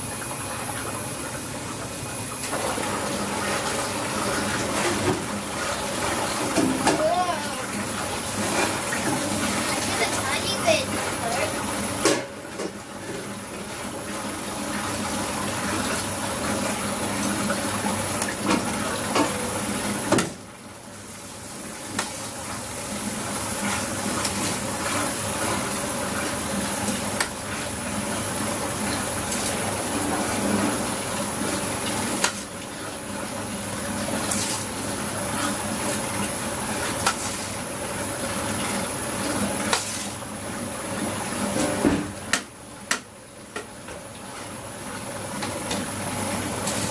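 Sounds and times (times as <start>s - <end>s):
steady water-like rushing: 3.5s - 11.8s.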